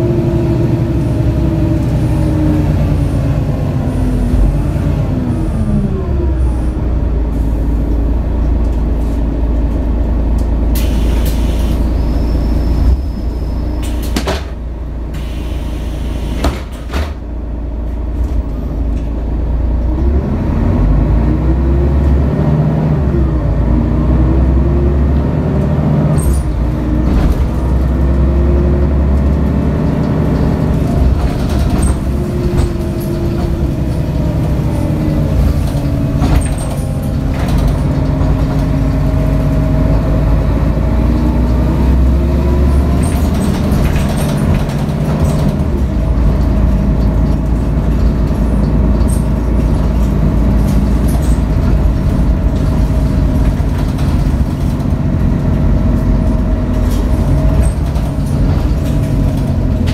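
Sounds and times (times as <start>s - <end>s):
bus diesel engine: 0.0s - 59.9s
bus body knocks and rattles: 13.8s - 14.8s, 16.3s - 19.2s, 25.1s - 59.9s.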